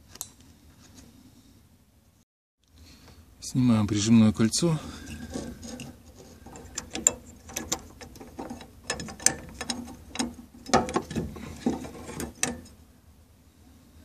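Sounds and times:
metal ring clicking and scraping: 5.0 - 12.8.

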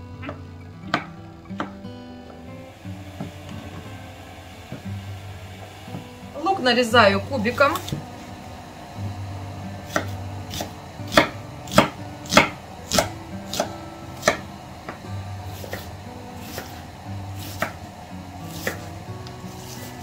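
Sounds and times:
knife chopping on wooden board: 9.9 - 15.0, 15.6 - 16.8, 17.4 - 17.8, 18.5 - 18.9.

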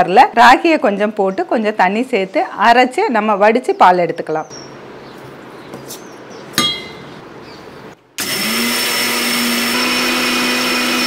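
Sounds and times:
metallic clink: 6.6 - 7.1
electric mixer grinder running: 8.2 - 11.0.

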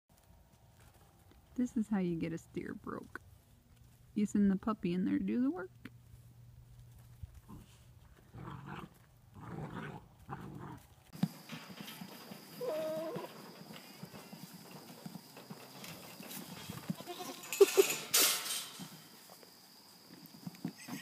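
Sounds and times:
goat bleat: 16.9 - 17.8.

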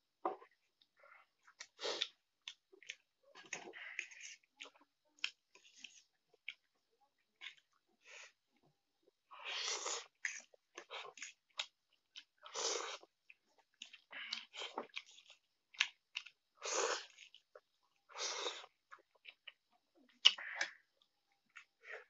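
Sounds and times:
person slurping noodles: 9.4 - 10.2, 12.5 - 13.1, 16.6 - 17.2, 18.1 - 18.7
wet chewing clicks: 9.8 - 22.0.

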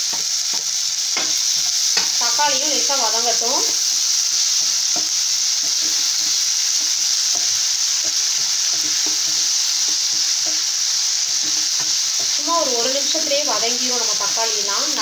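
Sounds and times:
vegetables sizzling in frying pan: 0.0 - 15.0.

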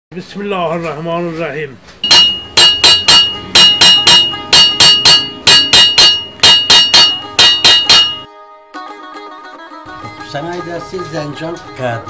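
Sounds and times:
hammer blows on metal: 2.0 - 8.3.

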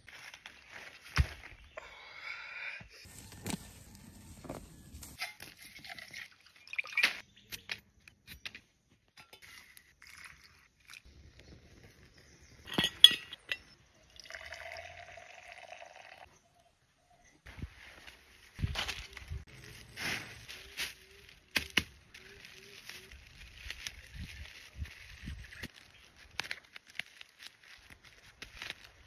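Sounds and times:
liquid pouring into glass: 14.0 - 16.2
water pouring into steel mug: 14.1 - 16.2.

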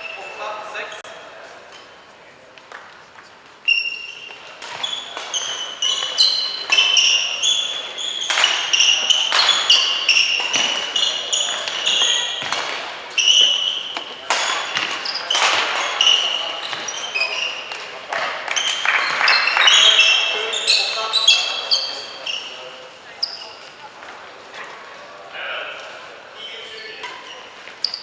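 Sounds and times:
shoes squeaking on court floor: 0.0 - 25.1, 25.8 - 28.0
rackets hitting shuttlecock: 3.8 - 21.0.

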